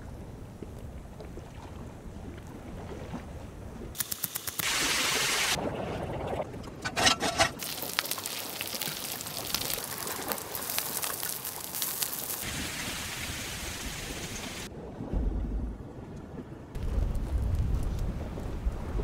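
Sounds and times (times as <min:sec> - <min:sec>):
bacon sizzling on a griddle: 0:07.6 - 0:12.7.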